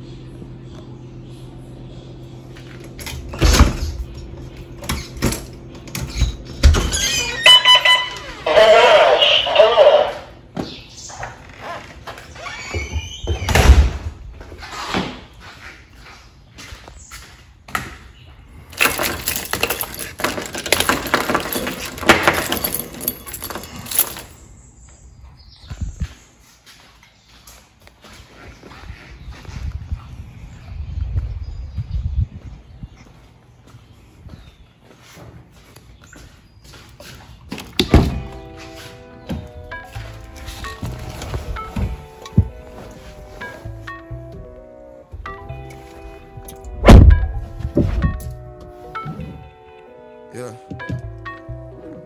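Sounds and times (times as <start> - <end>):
metal keys jangling: 18.7 - 24.5
footsteps on tile floor: 25.6 - 37.5
low hum: 37.9 - 50.0.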